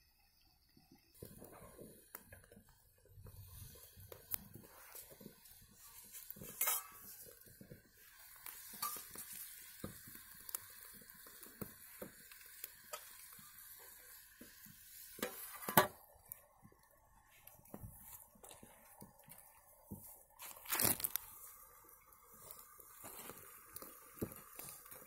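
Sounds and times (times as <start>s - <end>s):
chicken sizzling in a pan: 1.2s - 25.0s
metal lid clattering on pan: 6.6s - 7.0s.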